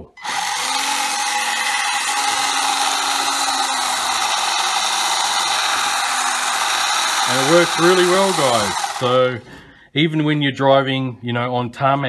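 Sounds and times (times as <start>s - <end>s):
electric motor whirring: 0.0s - 9.2s.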